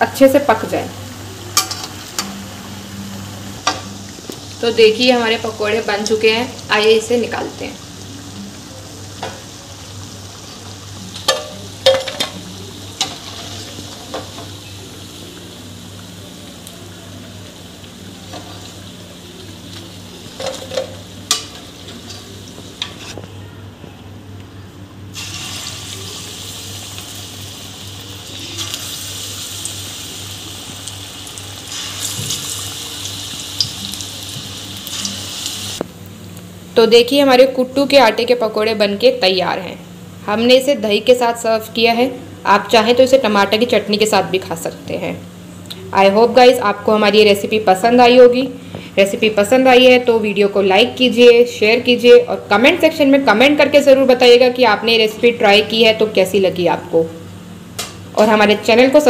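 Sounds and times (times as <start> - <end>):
food sizzling in hot fat: 0.0 - 23.2, 25.1 - 36.1.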